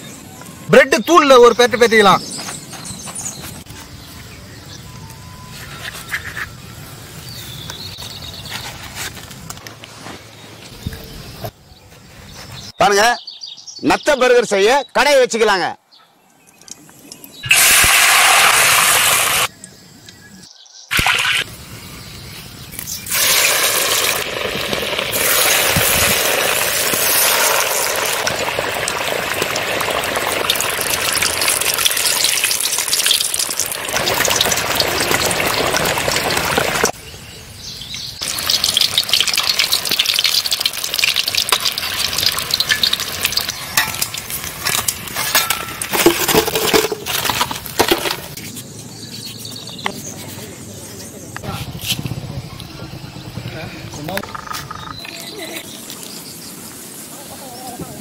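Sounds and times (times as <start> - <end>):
oil sizzling and crackling: 17.0 - 19.5, 22.7 - 37.0, 38.2 - 48.4, 54.3 - 58.0.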